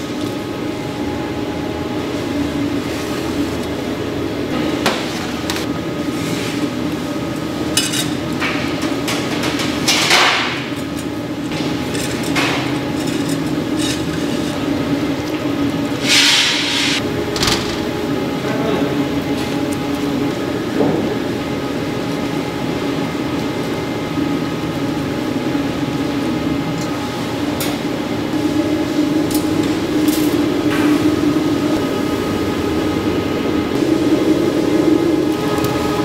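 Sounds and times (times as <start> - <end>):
machine hum: 0.0 - 36.0
short hiss bursts: 16.0 - 17.0.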